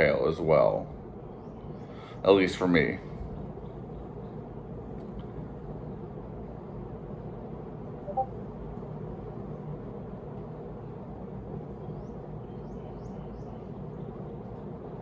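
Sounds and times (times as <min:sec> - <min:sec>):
outdoor ambience: 0:00.0 - 0:15.0
faint high chirps: 0:08.1 - 0:08.4.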